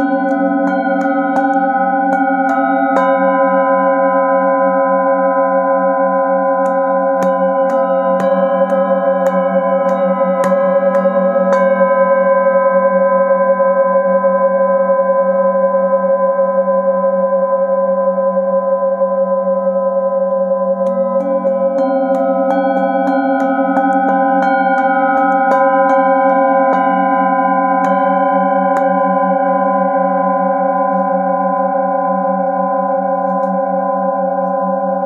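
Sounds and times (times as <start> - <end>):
mallet striking bowls: 0.0 - 5.6, 6.3 - 13.2, 20.2 - 35.0
singing bowls ringing: 0.0 - 35.0.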